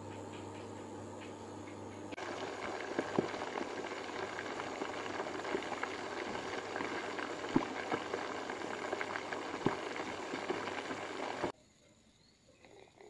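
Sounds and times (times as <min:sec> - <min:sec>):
chicken deep-frying in oil: 0:02.2 - 0:11.5.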